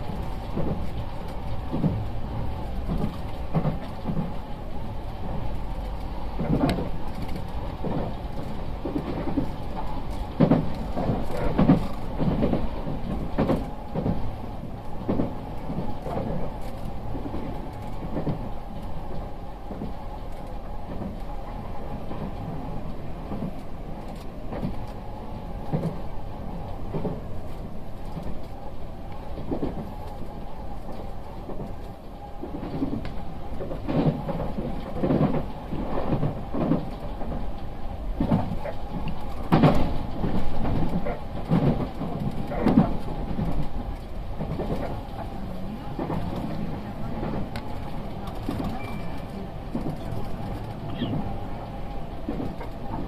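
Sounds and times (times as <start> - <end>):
train interior rumble: 0.0 - 53.0
wheels knocking on rails: 8.8 - 14.3.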